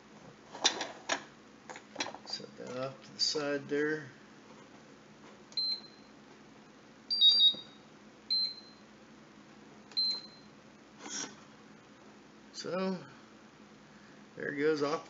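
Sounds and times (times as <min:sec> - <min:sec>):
charger beeps: 0:07.1 - 0:08.8
two-tone beep: 0:07.1 - 0:08.8.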